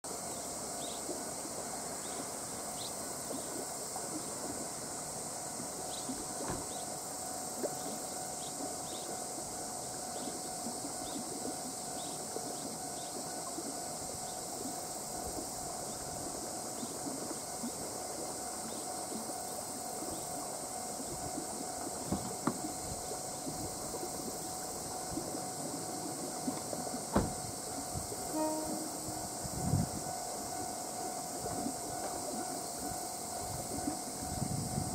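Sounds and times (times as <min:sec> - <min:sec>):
faint steady hum: 0:00.1 - 0:34.9
insect drone: 0:00.1 - 0:34.9
short high chirps: 0:28.3 - 0:29.0.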